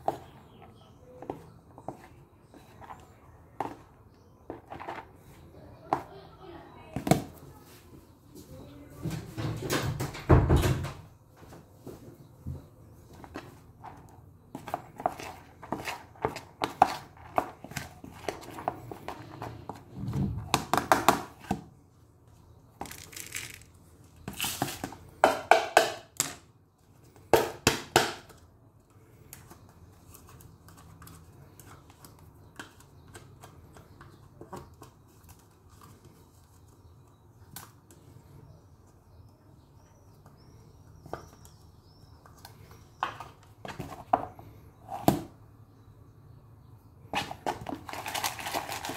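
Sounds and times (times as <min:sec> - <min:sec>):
containers rattling and clattering: 0:47.2 - 0:48.9.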